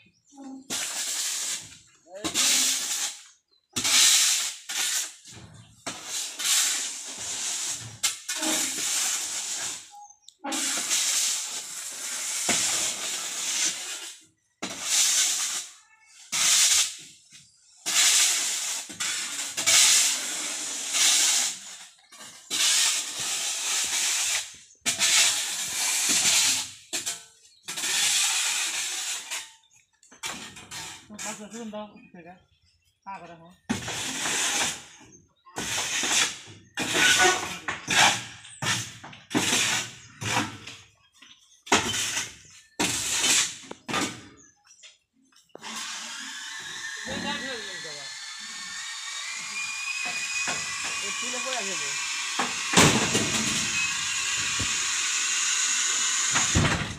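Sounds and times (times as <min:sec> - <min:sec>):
sand hissing as it is scraped: 0:00.2 - 0:31.6, 0:33.7 - 0:40.8, 0:41.7 - 0:43.9, 0:45.5 - 0:56.9
sand pouring onto a pile: 0:00.6 - 0:03.2, 0:03.8 - 0:05.2, 0:05.9 - 0:17.0, 0:17.9 - 0:21.7, 0:22.5 - 0:26.7, 0:50.9 - 0:56.6.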